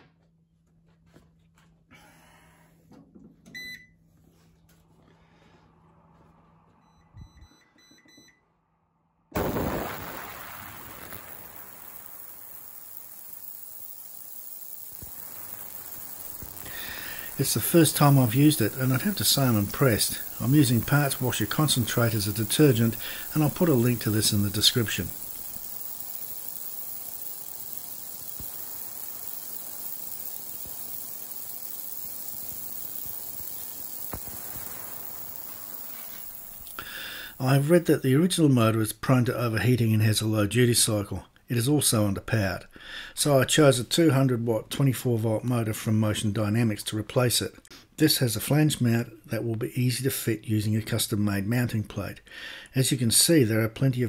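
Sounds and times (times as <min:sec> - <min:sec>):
ultrasonic cleaner hissing buzz: 0:09.4 - 0:38.0
thin high whining tones: 0:09.6 - 0:37.8.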